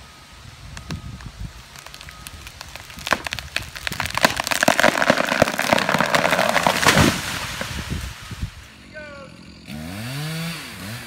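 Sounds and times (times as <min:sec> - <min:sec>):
tree wood cracking and snapping: 0:00.7 - 0:08.7
tree hitting ground: 0:00.8 - 0:08.7.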